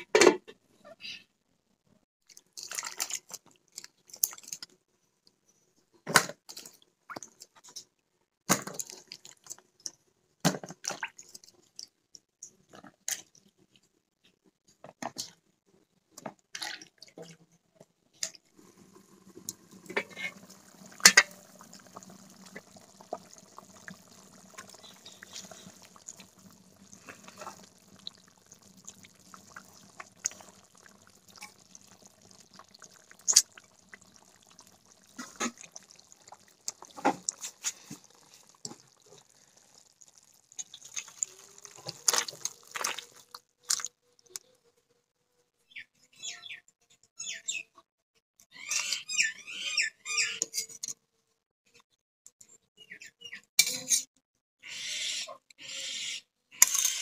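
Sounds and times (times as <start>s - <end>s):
curry cooking in iron pan: 18.2s - 44.4s
vegetable pieces splashing in water: 40.6s - 43.9s.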